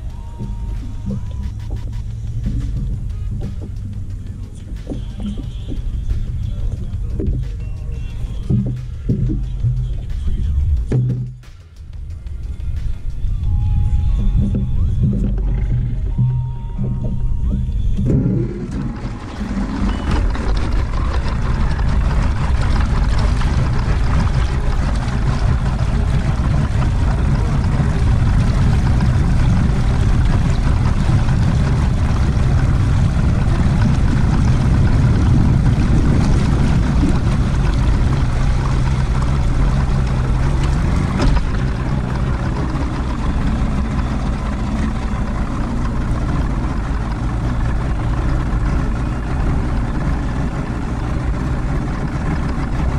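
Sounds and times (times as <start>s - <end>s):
outboard motor running: 0.0s - 52.9s
wind and water rushing: 18.0s - 52.9s.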